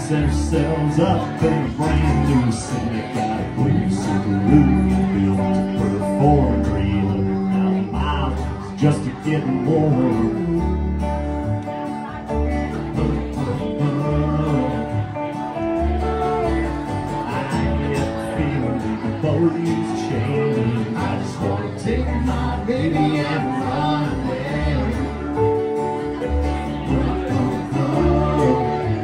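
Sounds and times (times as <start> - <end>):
country song with guitar and bass: 0.0 - 29.0.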